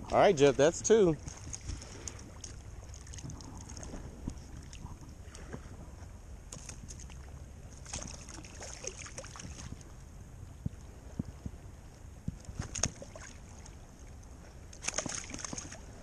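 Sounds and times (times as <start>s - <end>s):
low wind rumble on microphone: 0.0s - 16.0s
water lapping and sloshing: 0.0s - 16.0s
small splashes and drips: 1.2s - 4.0s, 6.5s - 9.8s, 12.7s - 15.8s.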